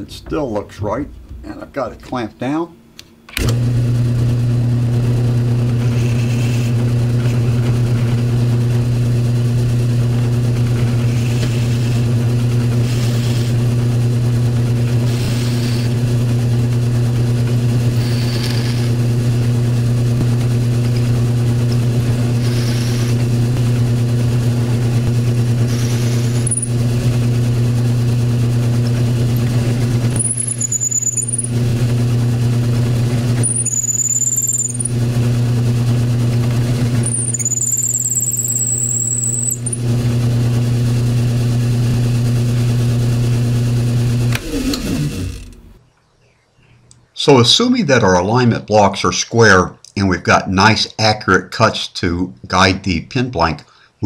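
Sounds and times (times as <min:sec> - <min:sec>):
drill press motor running: 0:03.3 - 0:45.8
drill bit scraping wood: 0:05.4 - 0:08.5, 0:10.0 - 0:16.6, 0:17.4 - 0:19.6, 0:20.2 - 0:23.7, 0:24.6 - 0:27.3, 0:28.6 - 0:40.6, 0:43.4 - 0:45.8
high-pitched squeals: 0:30.2 - 0:31.6, 0:33.4 - 0:35.0, 0:37.0 - 0:39.8.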